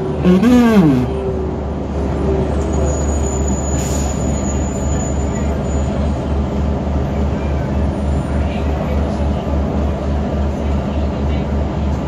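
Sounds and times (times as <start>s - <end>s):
bus diesel engine drone: 0.0s - 4.4s
road noise: 0.0s - 12.0s.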